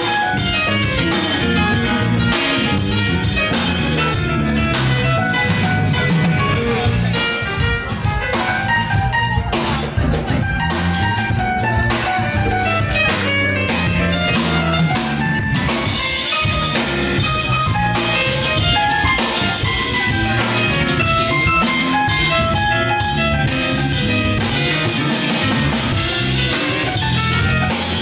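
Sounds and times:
congas: 0.0s - 28.0s
drum kit: 0.0s - 28.0s
electric guitars: 0.0s - 28.0s
keyboard: 0.0s - 28.0s.

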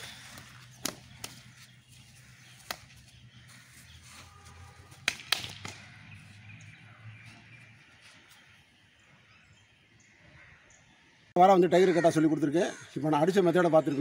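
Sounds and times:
slaps of hands blocking strikes: 0.8s - 1.4s, 5.0s - 5.9s.

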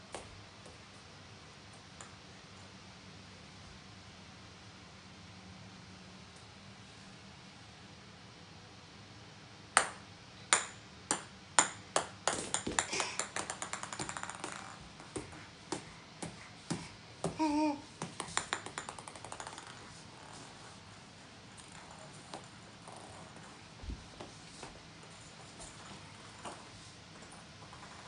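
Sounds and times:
plastic balls bouncing on wood floor: 10.6s - 20.4s.

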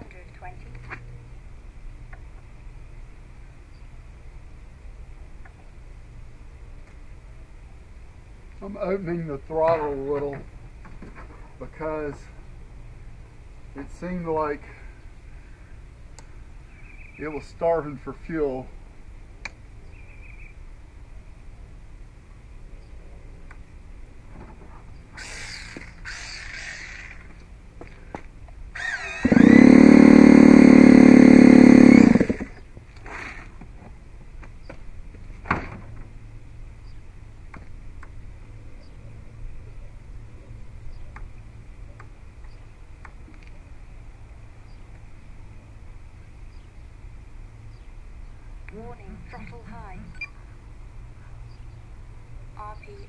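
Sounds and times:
two-stroke engine idling and revving: 28.8s - 32.7s.

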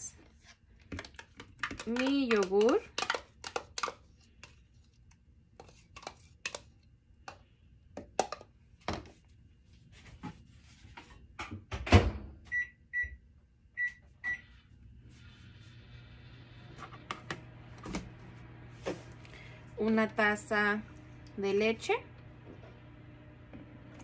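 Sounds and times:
microwave oven humming: 11.4s - 24.0s.

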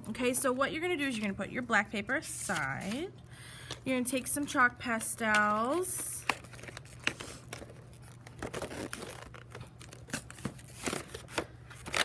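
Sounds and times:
plastic wrapper crinkling: 5.2s - 12.0s.

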